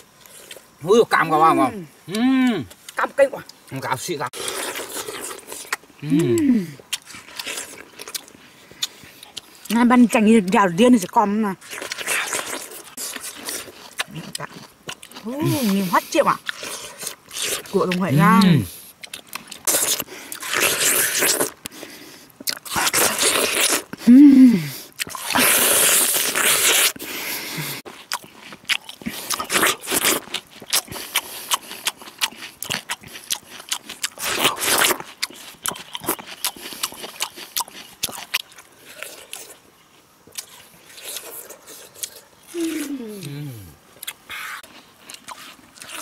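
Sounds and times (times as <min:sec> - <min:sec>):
wet crunching and chewing: 0:00.0 - 0:01.5, 0:02.6 - 0:24.1, 0:24.8 - 0:27.1, 0:27.8 - 0:46.0
short voiced hum: 0:42.5 - 0:44.6.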